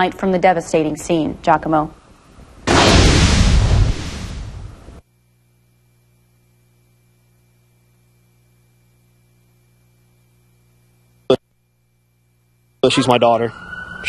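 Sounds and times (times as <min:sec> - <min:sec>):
faint electrical hum: 0:00.0 - 0:14.0
loud pop: 0:02.6 - 0:05.0.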